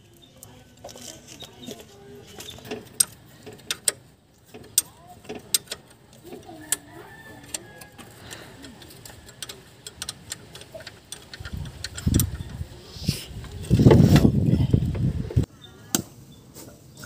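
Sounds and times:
hand tools clicking on metal: 0.8 - 12.8.

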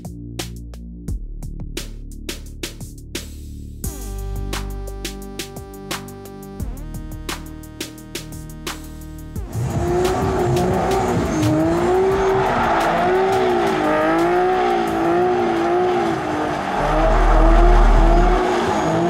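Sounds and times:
tyres squealing: 9.7 - 19.0
loud low rumble: 16.7 - 18.5.

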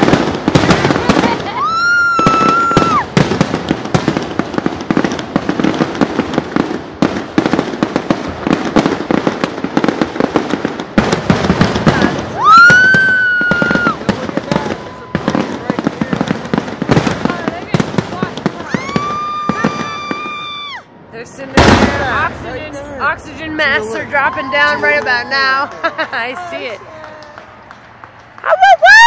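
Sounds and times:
fireworks whistles: 0.0 - 4.2, 11.1 - 20.9
fireworks crackling and popping: 0.0 - 29.0.

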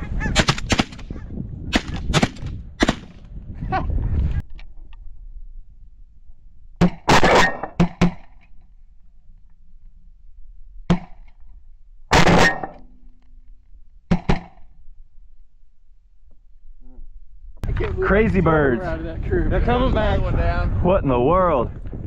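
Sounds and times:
shotgun shots: 0.3 - 1.1, 1.7 - 3.2, 6.8 - 8.3, 12.1 - 12.8, 14.1 - 14.6.

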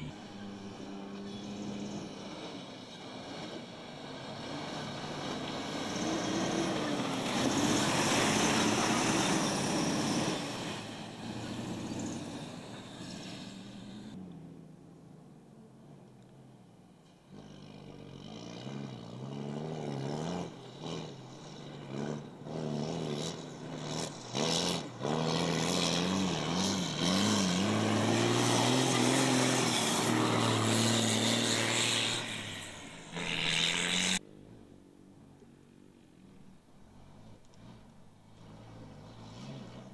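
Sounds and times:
diesel truck engine revving: 0.0 - 14.2, 17.3 - 34.2.

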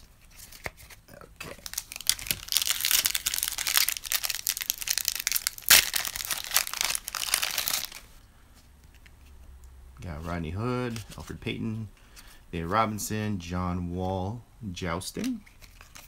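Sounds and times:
wrapper crackling: 1.4 - 8.1
sharp crack: 1.8 - 7.9.

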